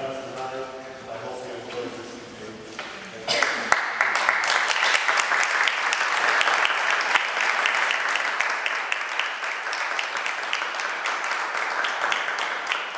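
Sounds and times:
audience applauding: 0:03.3 - 0:12.9.

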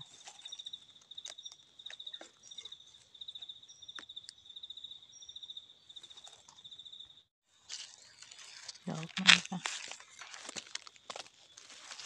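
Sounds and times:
dry leaf litter rustling: 0:07.6 - 0:12.0.

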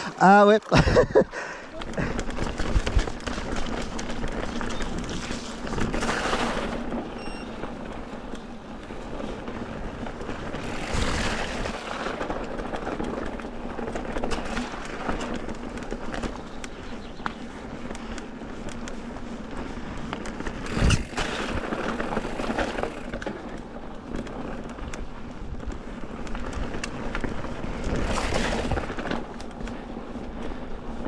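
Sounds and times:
bike tyres rolling and rattling: 0:00.0 - 0:31.0.

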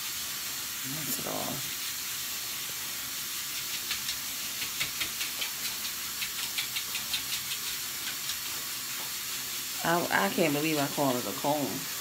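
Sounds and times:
comb scratching through hair: 0:03.6 - 0:08.5.

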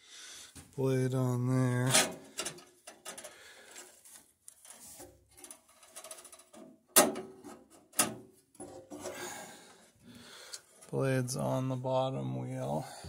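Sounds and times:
metallic clicks and rustling: 0:01.9 - 0:09.1.

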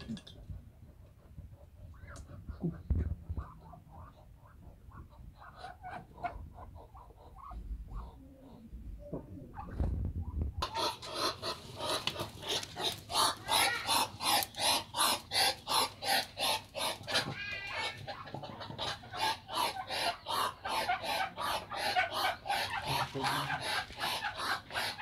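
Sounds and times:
ducks quacking harshly: 0:10.6 - 0:25.0.

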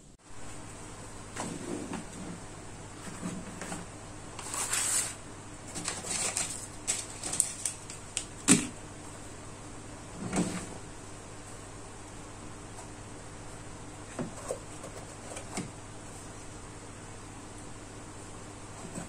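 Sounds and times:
plastic case rustling: 0:03.0 - 0:08.0.

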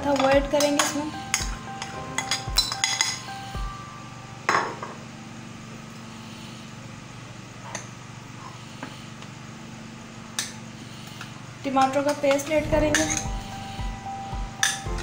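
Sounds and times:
low hum: 0:12.5 - 0:15.0.

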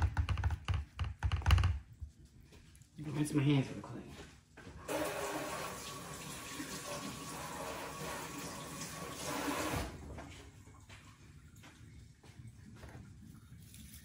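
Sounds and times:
faucet running over hands: 0:04.9 - 0:10.0.

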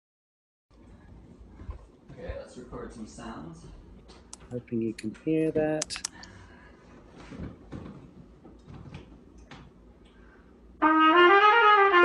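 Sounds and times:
faint knocks and handling noise: 0:06.9 - 0:09.8
trumpet loud held note: 0:10.8 - 0:12.0.

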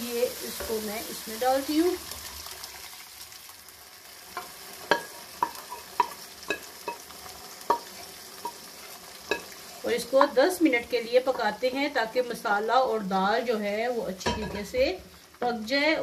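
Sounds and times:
lentils sizzling in a wok: 0:00.0 - 0:16.0
wooden spoon clinking on metal pot: 0:04.9 - 0:07.1, 0:09.3 - 0:09.5.

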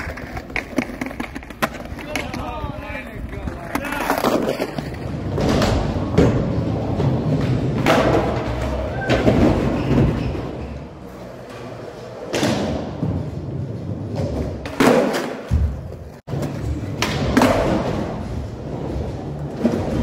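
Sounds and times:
skateboard hitting ground: 0:00.0 - 0:02.5, 0:03.6 - 0:10.2
skateboard wheels rolling on concrete: 0:00.0 - 0:20.0.

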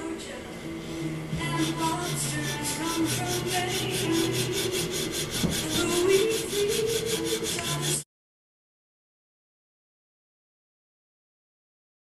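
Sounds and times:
hand file rasping on steel: 0:01.4 - 0:08.0.

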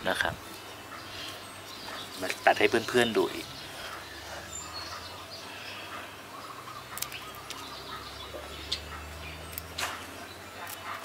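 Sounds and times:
birds chirping faintly: 0:00.0 - 0:11.0
scissors snipping: 0:06.9 - 0:07.6, 0:09.5 - 0:11.0.

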